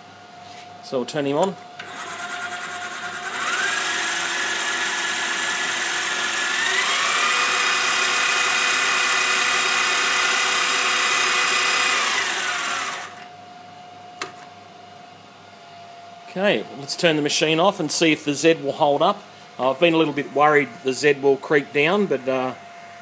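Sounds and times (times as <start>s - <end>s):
milling machine motor whine: 1.8s - 13.4s.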